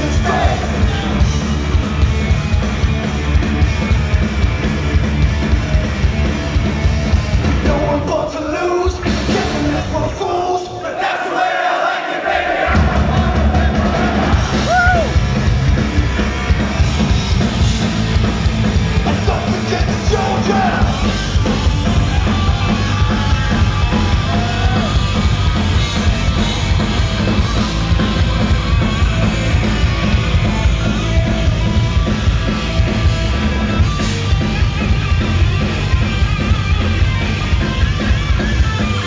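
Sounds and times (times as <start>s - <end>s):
live rock band playing: 0.0s - 10.3s, 12.8s - 39.0s
person shouting over music: 14.6s - 15.2s, 21.9s - 25.1s.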